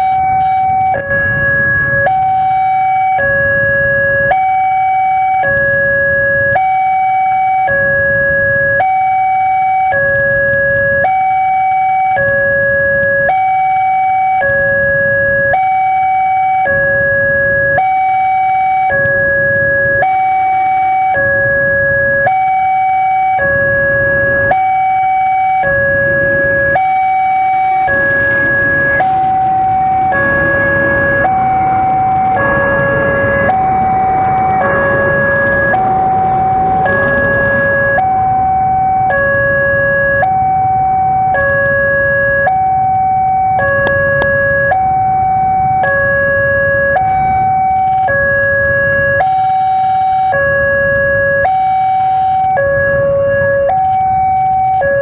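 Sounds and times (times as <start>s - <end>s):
level-crossing two-tone alarm: 0.0s - 55.0s
broad rushing noise: 22.6s - 51.0s.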